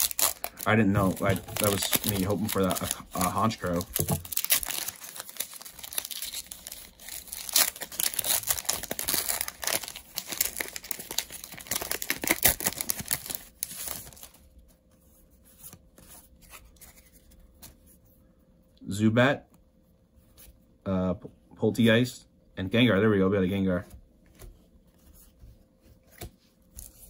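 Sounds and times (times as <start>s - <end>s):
plastic wrapper tearing and crinkling: 0.0s - 14.4s.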